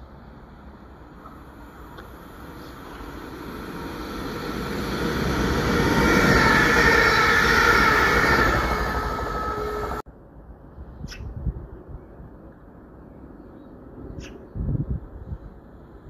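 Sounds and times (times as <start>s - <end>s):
train wheel and track noise: 0.0s - 10.0s
high whine: 1.1s - 10.0s.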